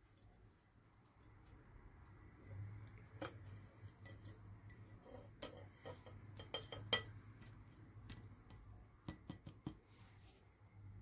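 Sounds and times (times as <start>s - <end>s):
spatula tapping a pan: 5.4s - 7.6s, 8.4s - 9.8s.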